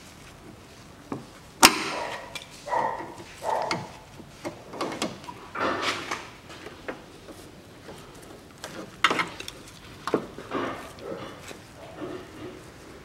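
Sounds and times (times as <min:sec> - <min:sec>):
hand tools clicking and scraping: 0:01.6 - 0:13.0.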